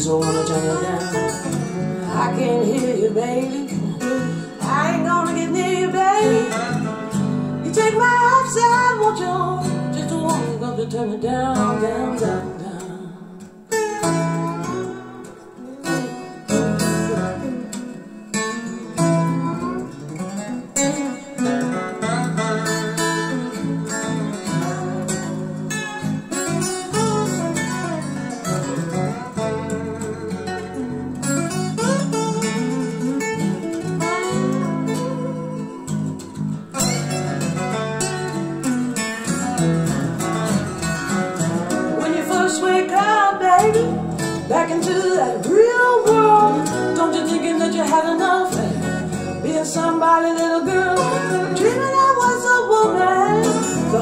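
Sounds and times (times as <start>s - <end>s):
acoustic guitar through speakers: 0.0s - 54.0s.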